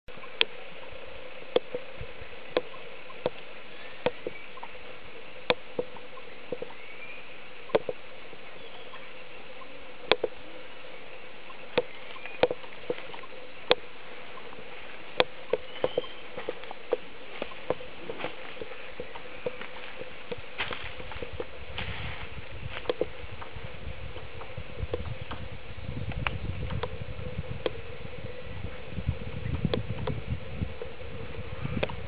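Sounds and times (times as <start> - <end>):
woodpecker tapping on bark: 2.5 - 4.8, 7.7 - 8.0, 10.0 - 10.4, 11.5 - 14.5, 15.1 - 21.9.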